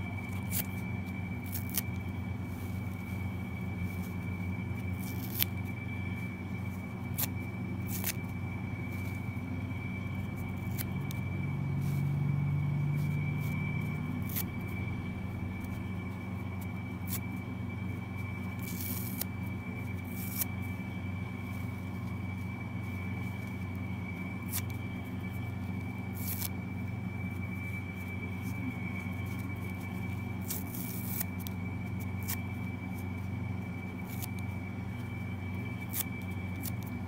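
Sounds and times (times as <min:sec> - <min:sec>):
steady low hum: 0:00.0 - 0:37.0
foam sponge ripping: 0:00.3 - 0:03.0, 0:04.8 - 0:05.5, 0:26.2 - 0:26.5, 0:28.3 - 0:32.4.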